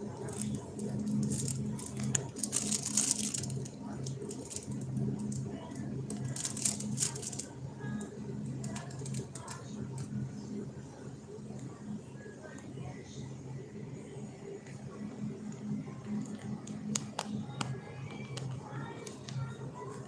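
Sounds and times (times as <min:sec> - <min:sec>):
low steady hum: 0:00.0 - 0:20.0
rustling and crackling: 0:00.2 - 0:07.5.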